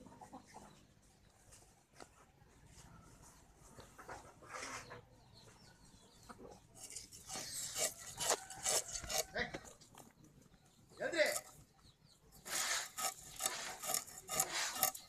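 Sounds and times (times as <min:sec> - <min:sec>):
fish scraped against iron blade: 0:06.8 - 0:09.7, 0:12.4 - 0:15.0.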